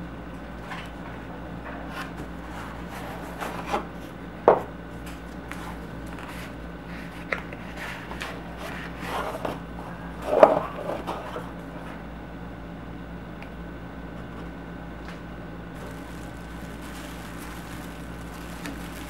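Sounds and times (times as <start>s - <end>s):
plastic wrap rustling: 15.8s - 19.0s.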